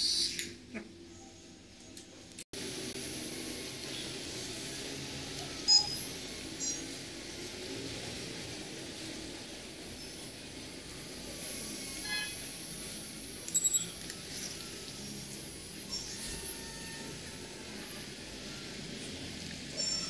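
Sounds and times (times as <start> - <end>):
sharp electronic beeps: 13.5 - 14.0.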